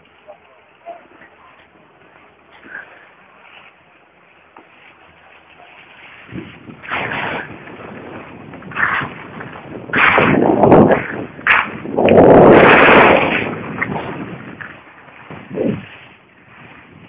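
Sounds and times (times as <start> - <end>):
wind rushing over microphone: 6.0 - 17.0.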